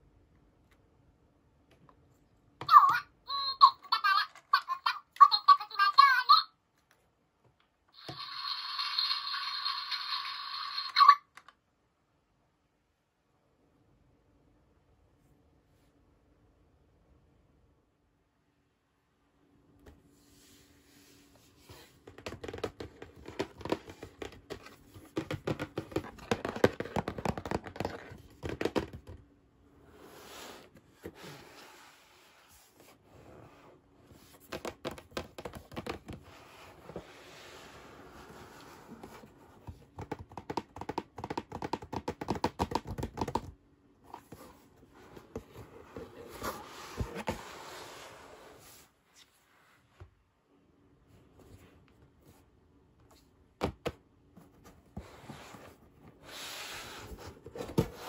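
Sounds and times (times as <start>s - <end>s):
hands handling cardboard box: 21.5s - 29.2s, 44.1s - 49.3s, 53.1s - 58.0s.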